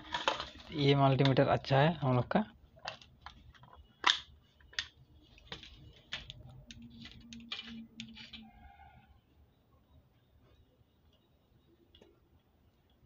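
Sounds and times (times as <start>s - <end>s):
faint steady tone: 7.8s - 13.0s.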